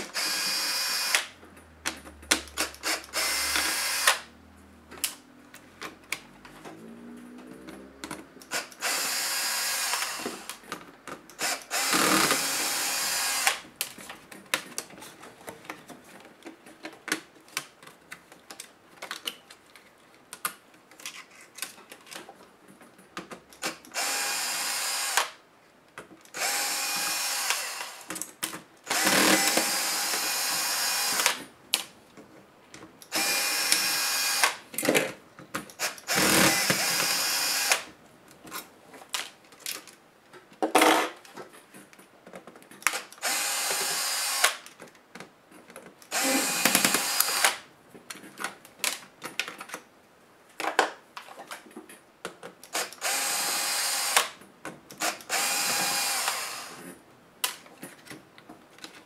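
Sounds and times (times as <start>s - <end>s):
electric screwdriver whirring: 0.0s - 1.3s, 2.6s - 4.3s, 8.4s - 10.6s, 11.4s - 13.6s, 23.6s - 25.4s, 26.3s - 28.1s, 28.9s - 31.4s, 33.1s - 34.6s, 35.8s - 37.9s, 42.9s - 44.6s, 46.1s - 47.6s, 52.7s - 54.4s, 55.0s - 56.8s.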